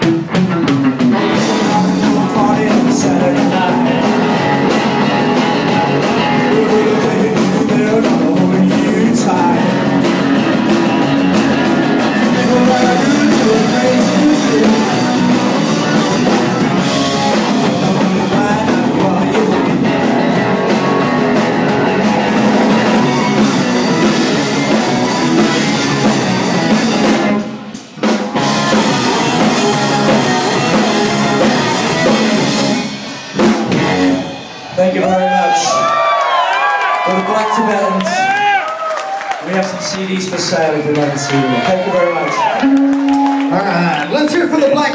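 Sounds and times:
garage rock band playing loud: 0:00.0 - 0:44.9.

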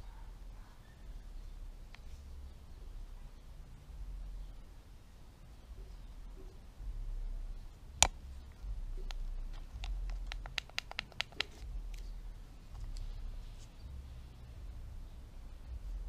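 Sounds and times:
plastic toy clicking: 0:09.1 - 0:11.6.

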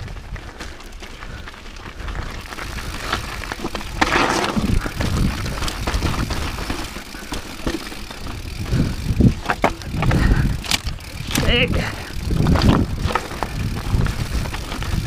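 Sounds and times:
bike tyres rumbling over gravel: 0:00.0 - 0:15.0
bike clattering on rocks: 0:02.4 - 0:15.0.

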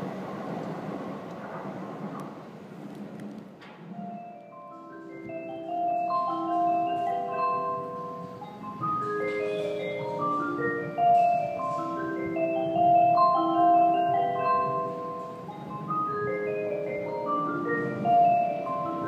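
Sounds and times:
chiming marimba-like melody: 0:04.0 - 0:19.0.

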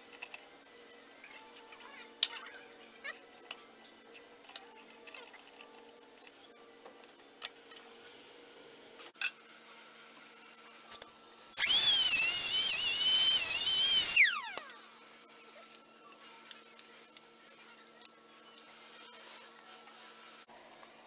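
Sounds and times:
power tool whining: 0:11.6 - 0:14.8.

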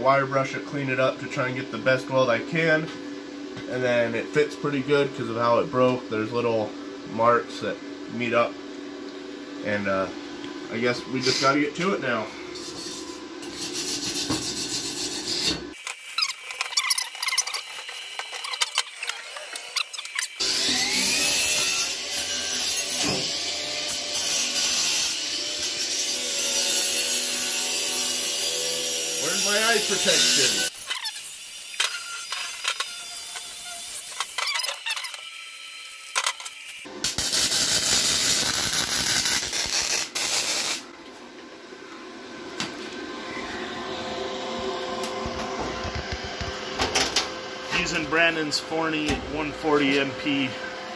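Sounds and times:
welding arc sizzling: 0:10.8 - 0:40.9
wire brush scrubbing metal: 0:12.6 - 0:23.1, 0:23.9 - 0:35.2
tools clinking and scraping: 0:15.8 - 0:20.4.

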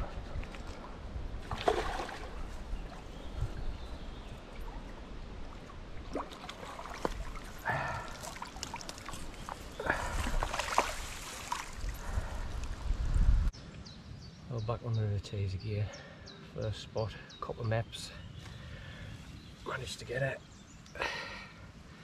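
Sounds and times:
wind rumble on microphone: 0:00.0 - 0:06.1, 0:11.8 - 0:14.4
fish splashing at the surface: 0:01.4 - 0:02.4, 0:10.2 - 0:11.9.

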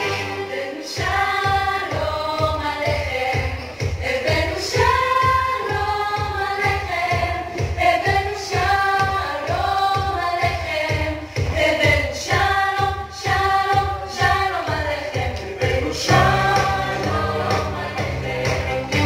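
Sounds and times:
voices singing over a beat: 0:00.0 - 0:19.0.

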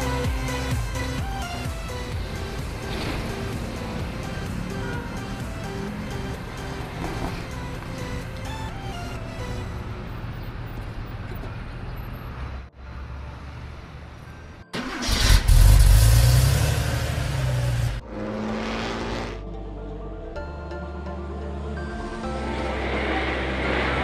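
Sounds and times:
background music: 0:00.0 - 0:10.4, 0:12.7 - 0:24.0
car engine starting and revving: 0:01.8 - 0:08.3, 0:14.7 - 0:19.5.

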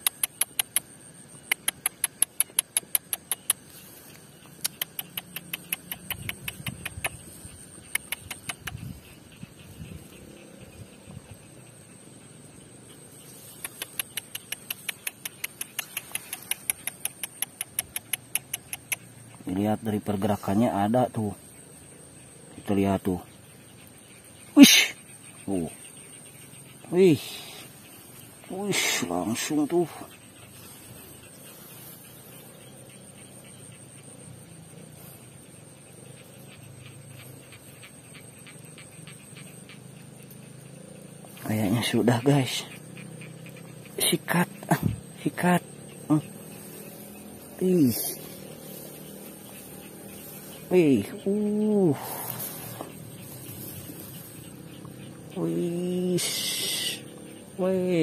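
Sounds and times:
fast sharp high clicks: 0:00.0 - 0:09.2, 0:13.4 - 0:19.4
high-pitched insect drone: 0:00.0 - 0:58.0
faint irregular ticking: 0:12.9 - 0:20.0, 0:21.5 - 0:58.0.

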